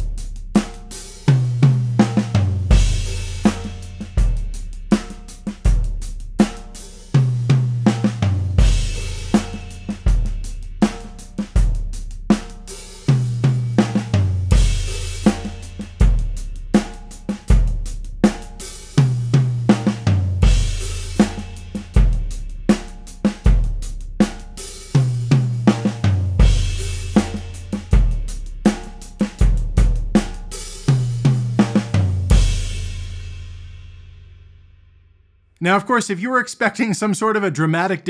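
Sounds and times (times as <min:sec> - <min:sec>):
snare drum: 0:00.0 - 0:11.7, 0:12.3 - 0:17.7, 0:18.3 - 0:32.5
cymbals: 0:00.0 - 0:29.6
hi-hat: 0:00.0 - 0:32.0
tom fill: 0:35.6 - 0:38.0.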